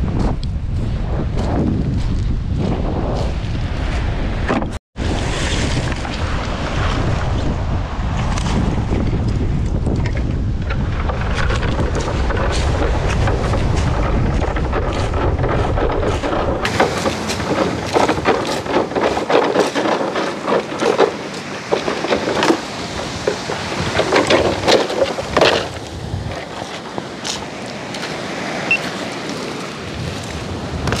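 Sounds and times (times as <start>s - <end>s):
wind buffeting microphone: 0.0s - 31.0s
breaking surf: 2.6s - 31.0s
wooden pole scraping on stones: 9.8s - 29.4s
footsteps on beach pebbles: 10.7s - 31.0s.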